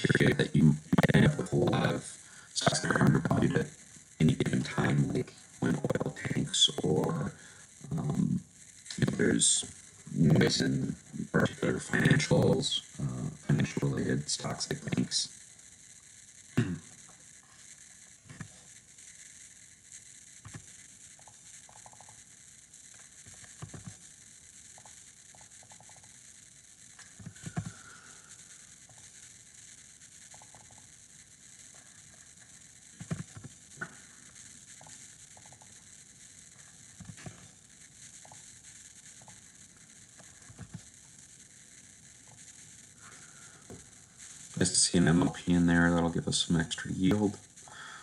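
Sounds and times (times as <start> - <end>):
steady hiss: 0.0 - 48.0
mouse clicks: 34.8 - 35.7.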